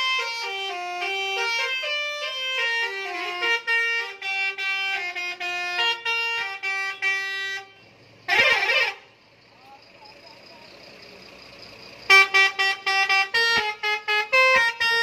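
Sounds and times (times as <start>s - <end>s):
loud horn blast: 0.0s - 7.7s, 8.3s - 9.0s, 12.1s - 15.0s
musical horn playing a tune: 0.0s - 7.7s, 12.1s - 15.0s.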